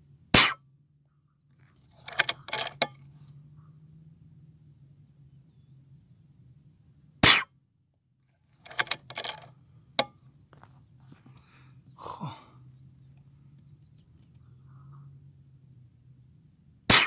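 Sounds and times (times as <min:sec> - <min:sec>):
air rifle shot: 0:00.4 - 0:00.6, 0:07.2 - 0:07.5
quick run of clicks: 0:01.7 - 0:02.9, 0:08.6 - 0:10.1.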